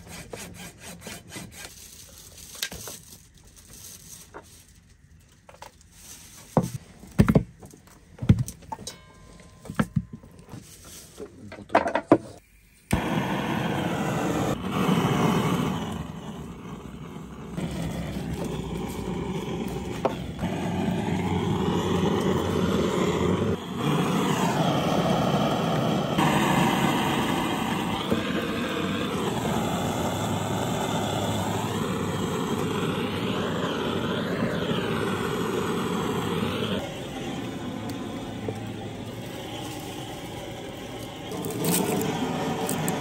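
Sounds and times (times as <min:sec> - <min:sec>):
gas torch hissing: 0:12.4 - 0:43.0.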